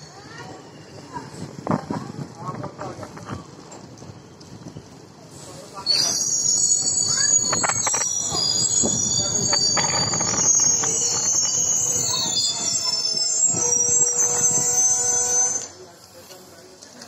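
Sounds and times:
wheels clicking over rail joints: 0:00.0 - 0:14.7, 0:15.6 - 0:17.0
low train rumble: 0:00.0 - 0:17.0
train wheels squealing: 0:05.5 - 0:15.9.

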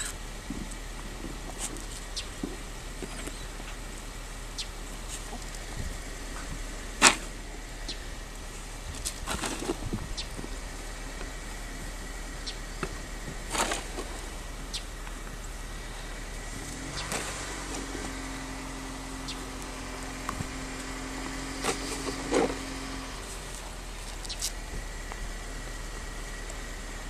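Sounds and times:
vehicle engine humming: 0:00.0 - 0:27.0
snow shovel scraping driveway: 0:04.9 - 0:24.7.

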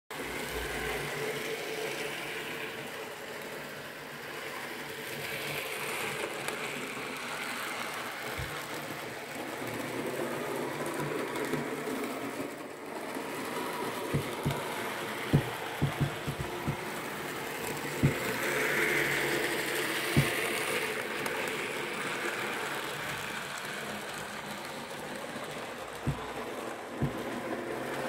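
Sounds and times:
model train motor whirring: 0:00.8 - 0:27.6
light knock: 0:08.4 - 0:08.6, 0:14.2 - 0:14.6, 0:15.4 - 0:16.8, 0:17.8 - 0:18.4, 0:20.2 - 0:20.5, 0:26.1 - 0:26.4, 0:27.0 - 0:27.4.

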